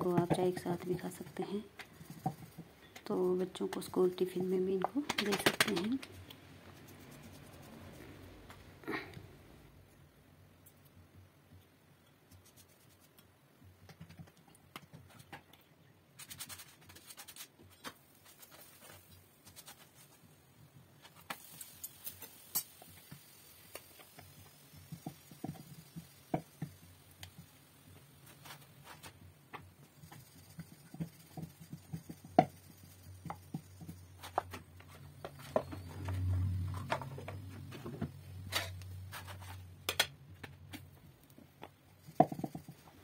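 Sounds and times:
taps and scratches on wooden board: 28.4 - 36.2, 42.0 - 42.9
faint low hum: 32.6 - 42.0.

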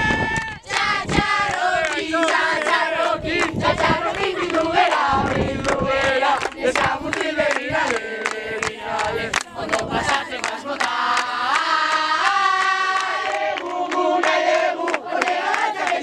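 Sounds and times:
young voices chanting a song: 0.4 - 16.0
hand clapping: 6.4 - 16.0.

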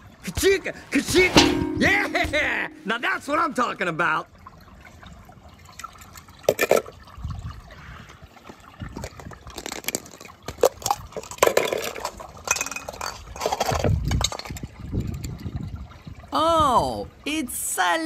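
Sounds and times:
toy cars splashing into water: 5.8 - 7.0, 8.9 - 15.3.

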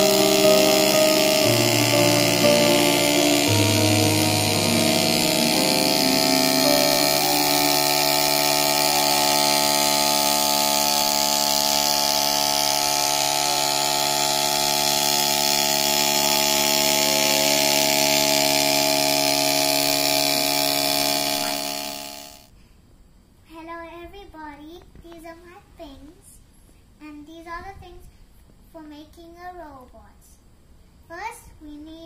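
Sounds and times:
small motor whirring: 0.0 - 22.5.

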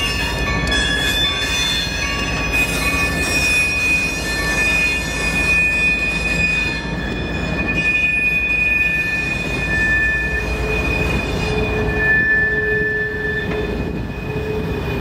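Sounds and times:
locomotive rumble: 0.0 - 15.0
high-pitched wheel squeal: 0.1 - 15.0.

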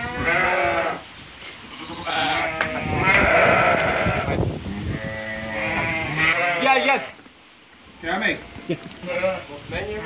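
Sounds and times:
sheep bleating: 0.0 - 1.0, 1.7 - 7.2, 8.3 - 9.5
flock shuffling on straw: 1.0 - 2.5.

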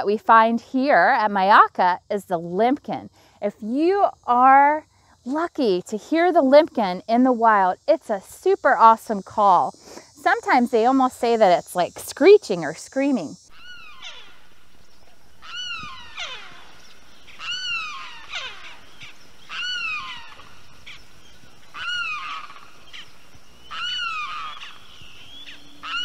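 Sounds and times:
bird screeching call: 13.5 - 26.0.

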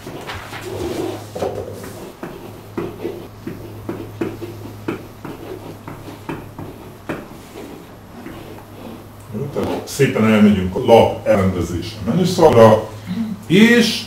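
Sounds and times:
steady low hum: 0.0 - 14.0
pen tapping on whiteboard: 1.4 - 8.7.

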